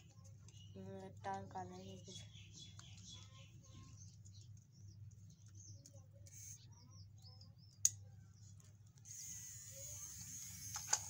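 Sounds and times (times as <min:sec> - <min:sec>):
toy motor whining: 0:06.2 - 0:06.6, 0:09.0 - 0:11.0.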